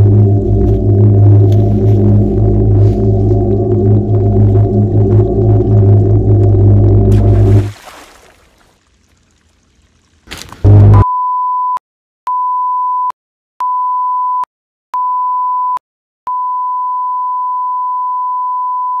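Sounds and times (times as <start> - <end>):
loud burst of noise: 0.0 - 7.7.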